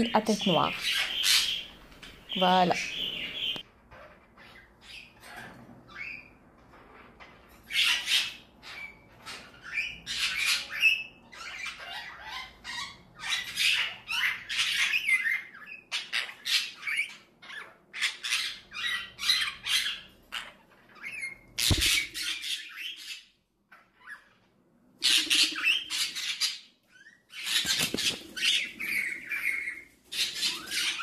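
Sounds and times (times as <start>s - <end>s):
parrots squawking and chattering: 0.0s - 31.0s
sharp knock: 21.6s - 22.1s.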